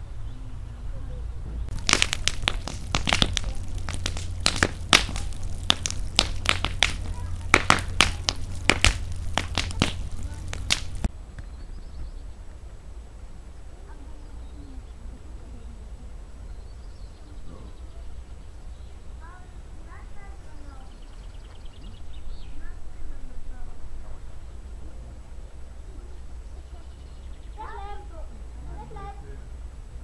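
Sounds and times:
low steady rumble: 0.0s - 20.9s
campfire crackling and popping: 1.7s - 11.1s.

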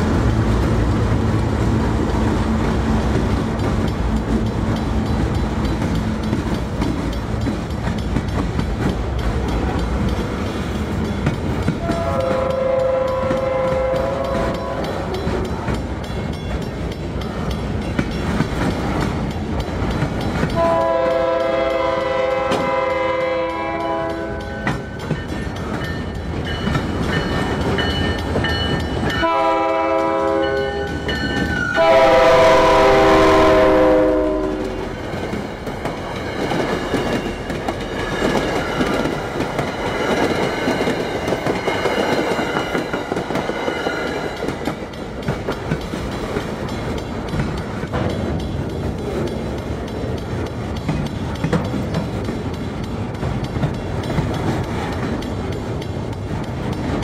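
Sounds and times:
train cars rumbling past: 0.0s - 57.0s
locomotive horn blasts: 11.8s - 15.1s, 20.6s - 24.7s, 29.2s - 30.9s, 31.7s - 34.9s.

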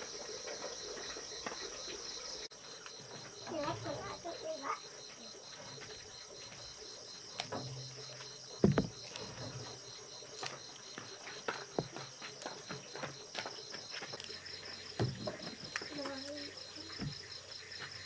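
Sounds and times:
night insects trilling: 0.0s - 18.0s
low thump: 8.6s - 9.5s.

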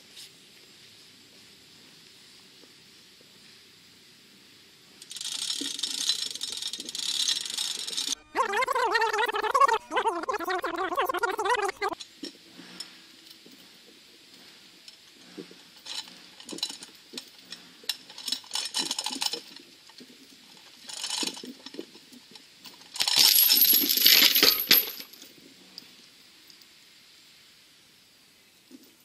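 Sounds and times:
chains clinking and rattling: 5.1s - 8.7s, 15.8s - 19.6s, 20.5s - 21.8s, 22.7s - 25.3s.

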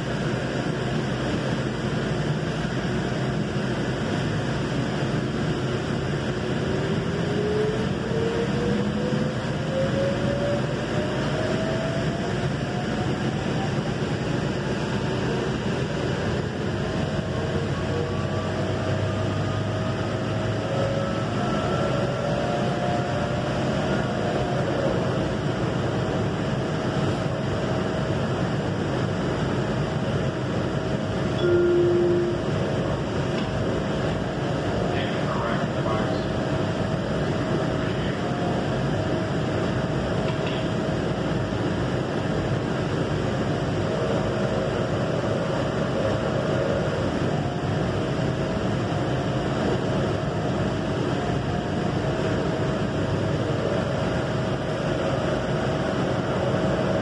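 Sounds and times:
train rumble and hiss: 0.0s - 57.0s
steady tone: 31.3s - 34.0s.

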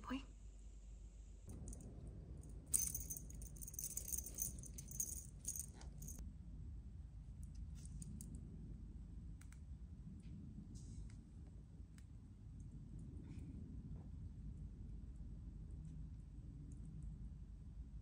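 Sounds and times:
cat toy jingling and rattling: 2.7s - 6.2s.

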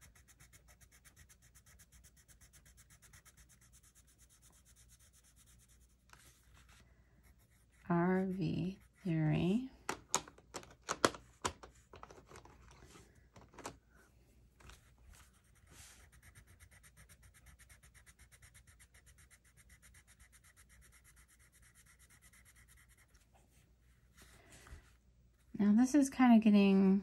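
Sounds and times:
pencil scratching on paper: 0.0s - 9.7s, 14.7s - 23.2s.

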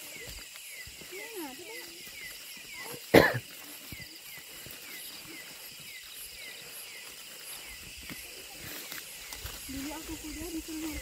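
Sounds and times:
rhythmic night insect chirping: 0.0s - 11.0s
person coughing: 3.1s - 3.5s.

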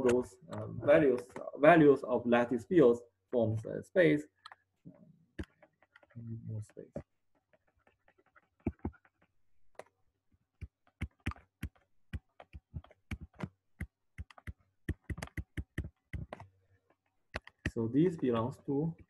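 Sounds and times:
stylus clicking on pen tablet: 5.4s - 17.7s.

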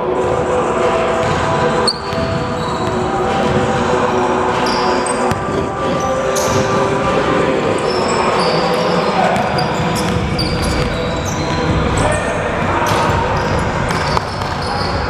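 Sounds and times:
steady multi-tone hum: 0.0s - 15.0s
sneaker squeaks: 1.2s - 3.7s, 4.6s - 6.8s, 7.7s - 15.0s.

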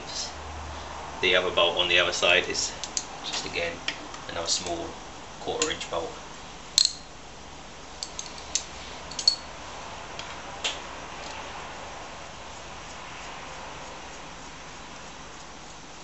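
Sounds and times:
ringing metal clink: 6.8s - 7.1s, 8.0s - 9.5s
light metal clicks: 8.0s - 9.5s.

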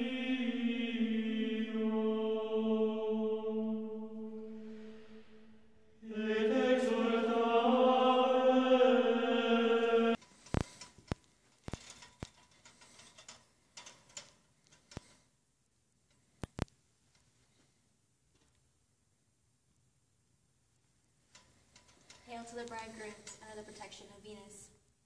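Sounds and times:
chanted vocal drone: 0.0s - 10.2s.

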